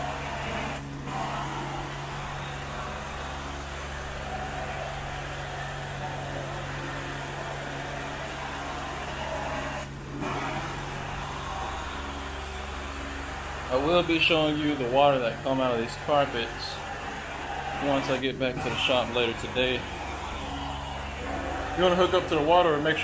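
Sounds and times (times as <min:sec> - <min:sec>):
machine motor hum: 0:00.0 - 0:23.0
suction hissing: 0:00.0 - 0:23.0.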